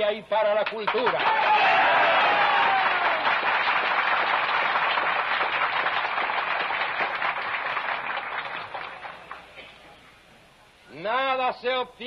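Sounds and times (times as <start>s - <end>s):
crowd applauding: 0.8s - 9.6s.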